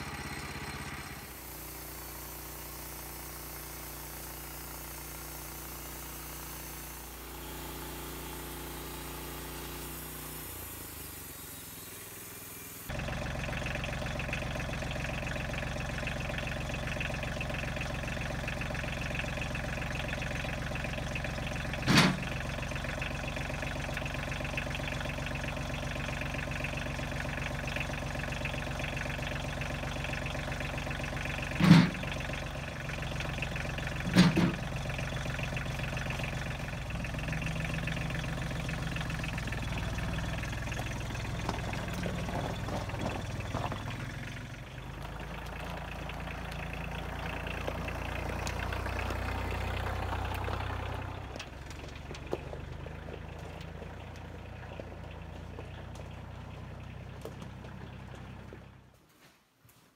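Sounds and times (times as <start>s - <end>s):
tractor diesel engine idling: 0.0s - 59.0s
wooden beams thumping into steel bucket: 31.5s - 32.2s, 34.0s - 34.7s.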